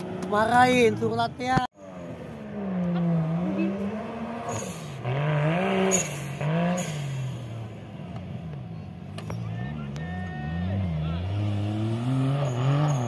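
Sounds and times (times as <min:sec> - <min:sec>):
buggy engine revving: 0:00.0 - 0:13.0.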